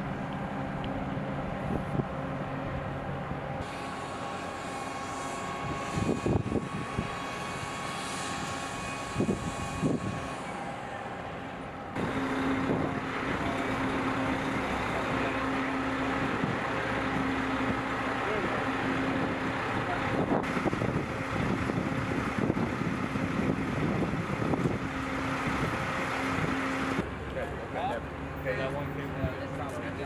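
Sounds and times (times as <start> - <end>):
truck diesel engines running: 0.0 - 30.0.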